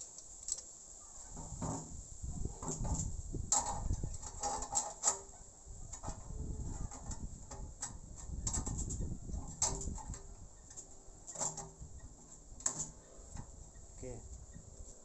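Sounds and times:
metal scraping: 1.3s - 13.7s.

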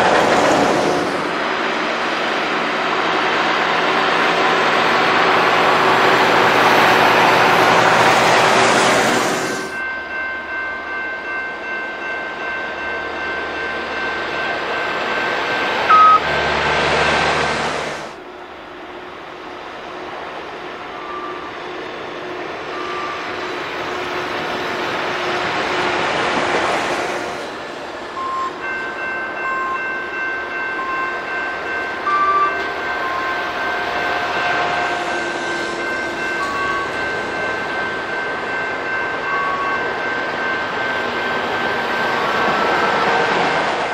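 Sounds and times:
track maintenance machines passing: 0.0s - 43.9s
crossing warning bell ringing: 9.7s - 17.5s, 20.6s - 26.1s, 28.0s - 43.9s.

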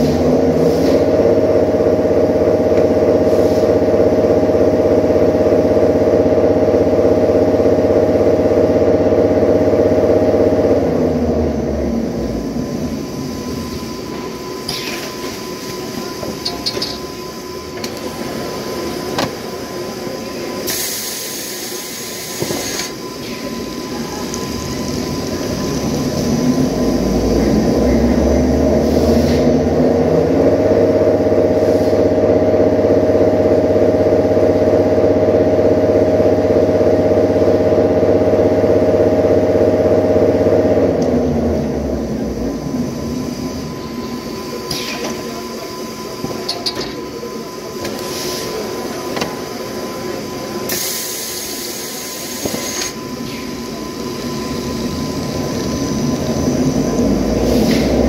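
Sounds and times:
rewinding machine humming: 0.0s - 58.0s
hiss: 20.6s - 24.2s, 47.8s - 48.8s, 50.7s - 53.7s, 57.4s - 58.0s.

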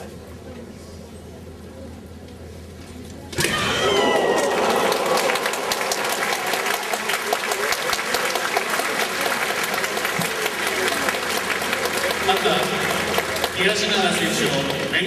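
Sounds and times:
crowd applauding: 3.5s - 15.0s.

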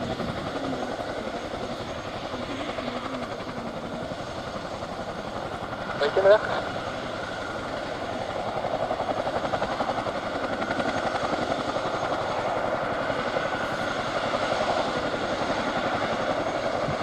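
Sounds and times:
helicopter rotor blades beating: 0.0s - 17.0s.

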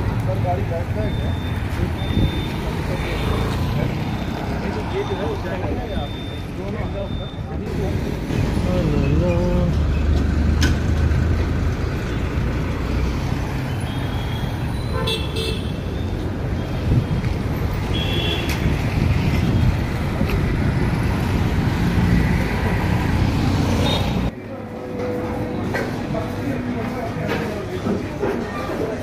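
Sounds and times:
road traffic passing: 0.0s - 29.0s
vehicle horn toots: 14.1s - 15.7s.

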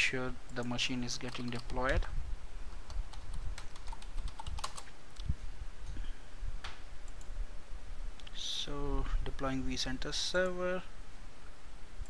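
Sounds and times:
computer keyboard typing: 0.6s - 2.1s, 2.9s - 4.9s.

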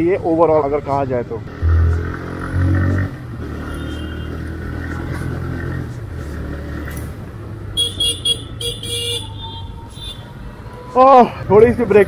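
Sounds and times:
wind and road noise: 0.0s - 12.0s
motorcycle engine running: 1.5s - 3.4s.

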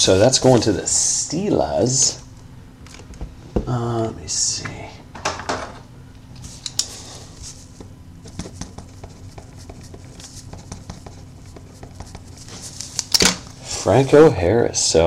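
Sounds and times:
pen scratching on paper: 8.3s - 12.6s.

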